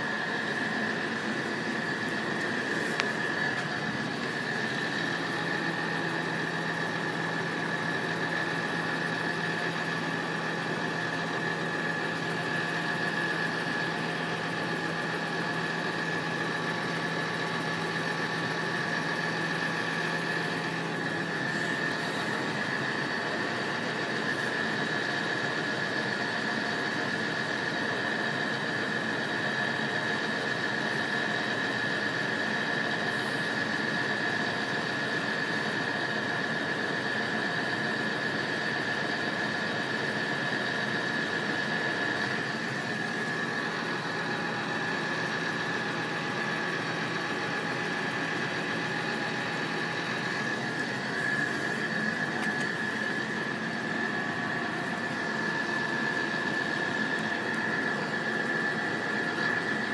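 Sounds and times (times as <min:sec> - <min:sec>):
vehicle engine idling hum: 0:00.0 - 0:25.0, 0:41.3 - 0:59.8.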